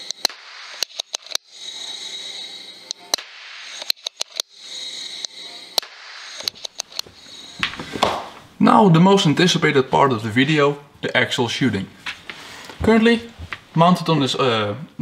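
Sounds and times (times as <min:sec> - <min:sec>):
air rifle firing: 0:00.0 - 0:01.5, 0:03.0 - 0:04.5, 0:05.8 - 0:07.0
pellets striking target: 0:03.2 - 0:04.3
microphone hiss: 0:04.6 - 0:15.0.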